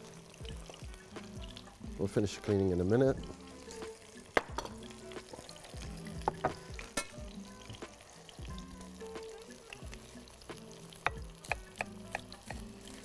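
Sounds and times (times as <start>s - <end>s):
soft background music: 0.0s - 13.0s
wrap sizzling in pan: 0.0s - 13.0s.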